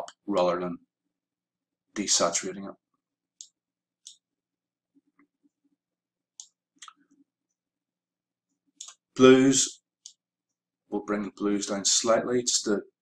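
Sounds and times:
computer mouse clicks: 3.4s - 4.2s, 6.4s - 7.2s, 8.8s - 9.0s.

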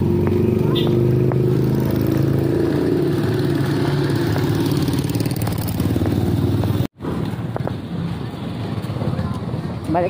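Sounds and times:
street traffic noise: 0.0s - 10.0s.

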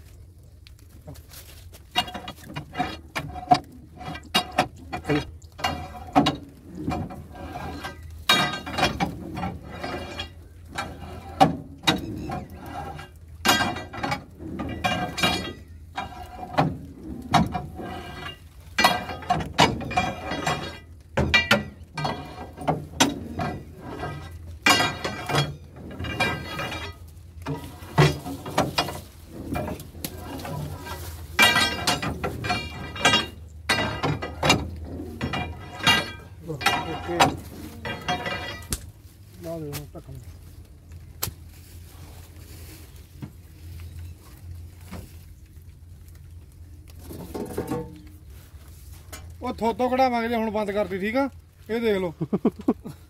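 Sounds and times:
metal bar clanking on drum: 2.0s - 38.8s.

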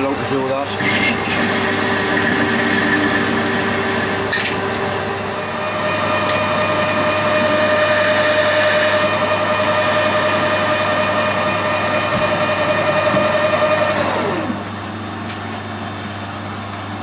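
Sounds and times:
higher tone of cutting tool: 0.0s - 14.6s
metal lathe whining: 0.0s - 14.8s.

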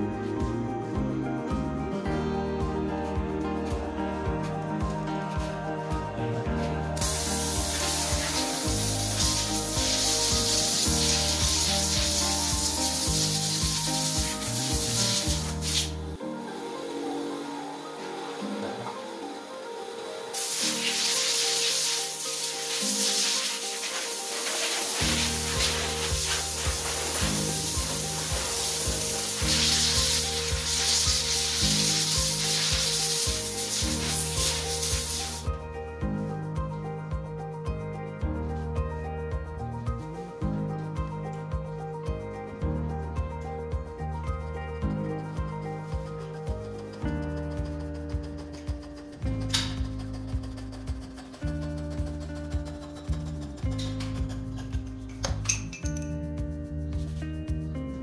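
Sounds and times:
background music: 0.0s - 58.0s
compressed air hissing from air gun: 7.0s - 16.0s, 20.3s - 35.5s.

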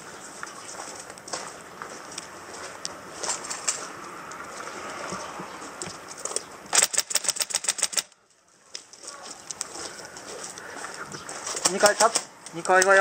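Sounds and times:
sharp clicks: 6.1s - 8.2s.

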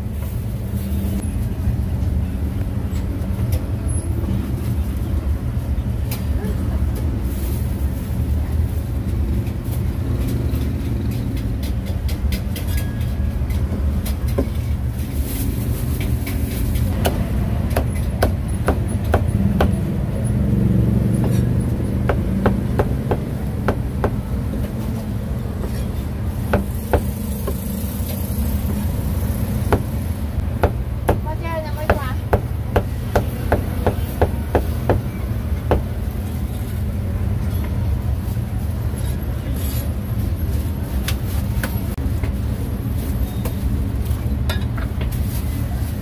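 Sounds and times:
low rumble of street traffic: 0.0s - 46.0s
cleaver chopping meat on wood: 21.2s - 24.2s.

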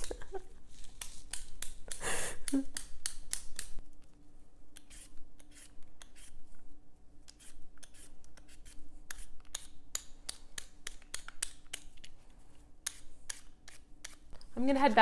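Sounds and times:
peeler rasping potato skin: 4.7s - 6.4s, 7.3s - 11.9s, 12.8s - 14.3s.

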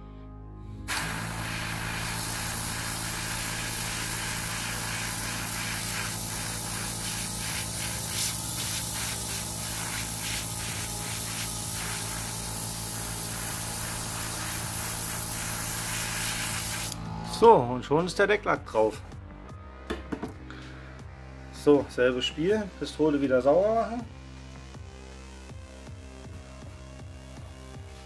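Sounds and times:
airbrush spraying hiss: 0.9s - 17.0s
compressor humming: 0.9s - 17.5s.

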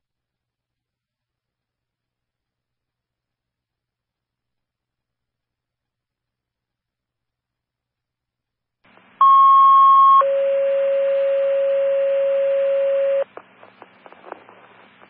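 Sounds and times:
two-tone radio page: 9.2s - 15.0s
faint radio static and clicks: 12.6s - 15.0s.

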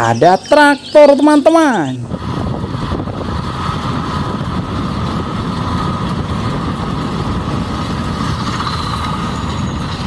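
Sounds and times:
tractor engine running: 2.0s - 10.0s.

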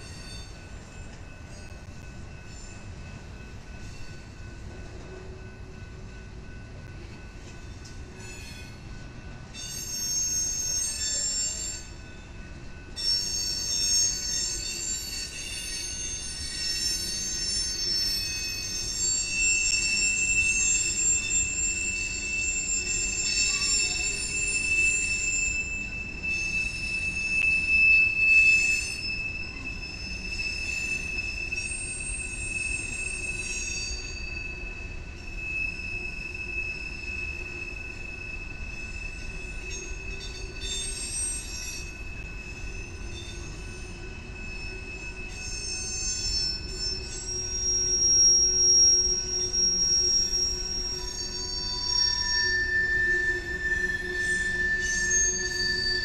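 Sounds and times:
low rumble of passing train: 0.0s - 56.0s
train wheels squealing: 0.0s - 56.0s.

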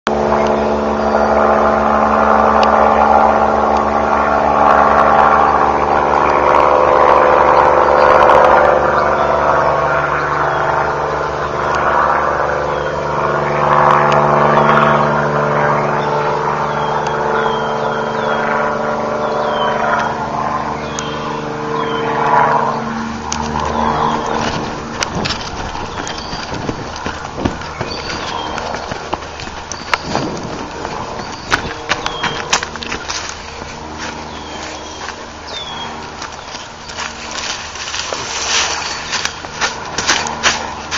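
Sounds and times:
helicopter flying over: 0.1s - 40.9s
knocks and rustles: 23.5s - 34.2s.

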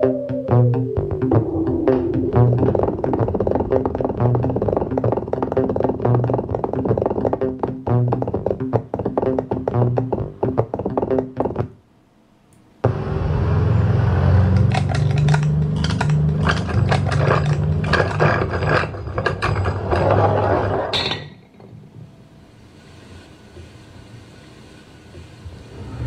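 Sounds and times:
creature sound effect through speakers: 0.0s - 10.2s.

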